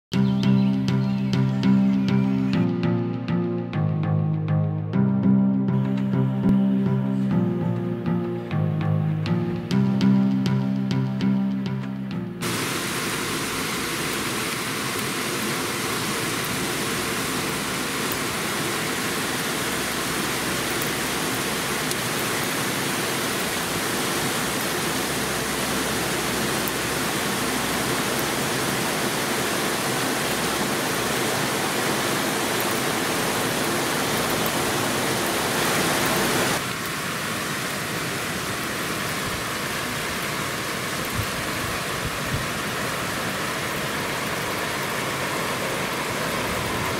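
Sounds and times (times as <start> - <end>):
torrential rain: 5.4 - 46.9.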